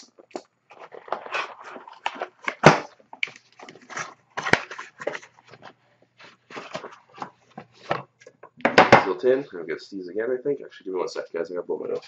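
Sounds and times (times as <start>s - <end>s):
cardboard scraping and rustling: 0.7s - 8.0s.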